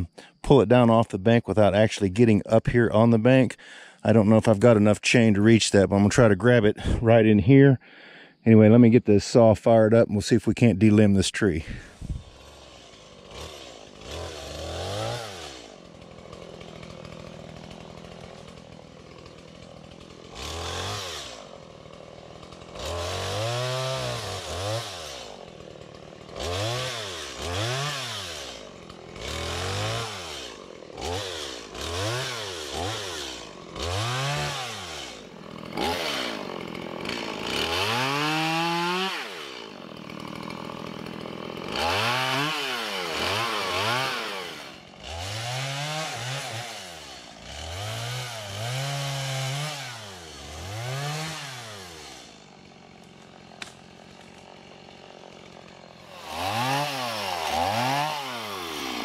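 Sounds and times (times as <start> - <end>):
chainsaw revving: 0.0 - 8.4, 11.0 - 59.0.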